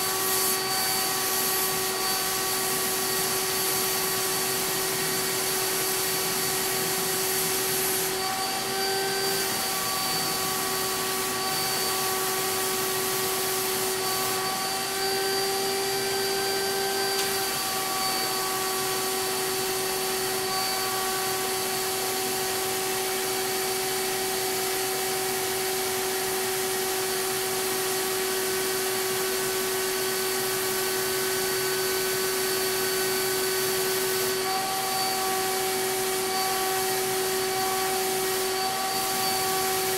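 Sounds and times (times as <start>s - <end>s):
air hissing through hose: 0.0s - 15.9s
turbine sprayer whining: 0.0s - 39.9s.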